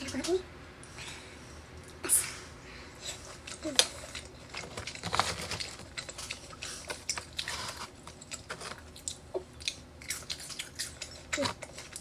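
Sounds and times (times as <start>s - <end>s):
person chewing food wetly: 3.0s - 12.0s.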